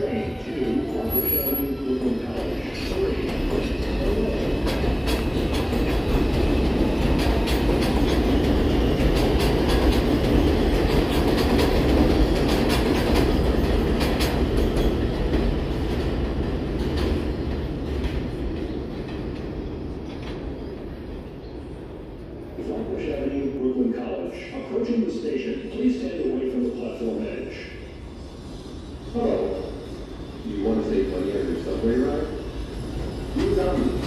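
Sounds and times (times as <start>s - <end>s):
subway train on elevated track: 0.0s - 34.0s.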